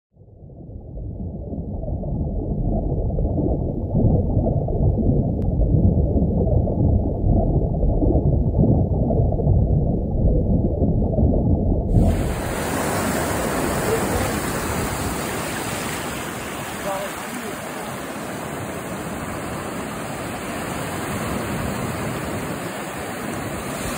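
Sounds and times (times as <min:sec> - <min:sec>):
underwater rumble with gurgling: 0:00.1 - 0:15.5
wind on microphone: 0:07.0 - 0:17.1, 0:18.2 - 0:23.9
surf breaking: 0:11.9 - 0:23.9.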